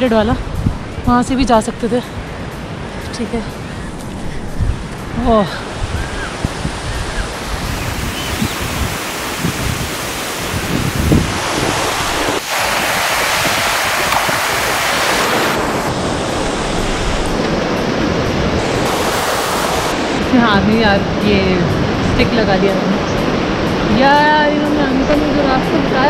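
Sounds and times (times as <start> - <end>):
wind buffeting microphone: 0.0 - 26.0
stream rushing over rocks: 6.4 - 20.3.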